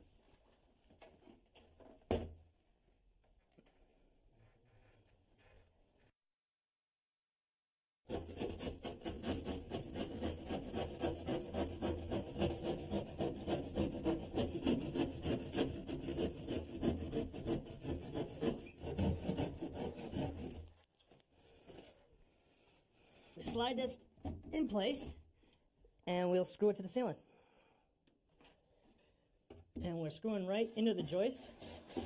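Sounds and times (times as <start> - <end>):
hand saw sawing: 8.1 - 20.8, 30.8 - 32.0.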